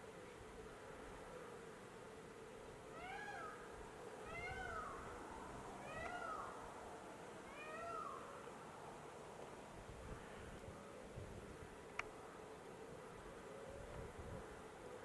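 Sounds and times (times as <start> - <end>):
faint outdoor hiss: 0.0 - 15.0
mewing cat-like calls: 4.2 - 5.1, 5.8 - 6.6.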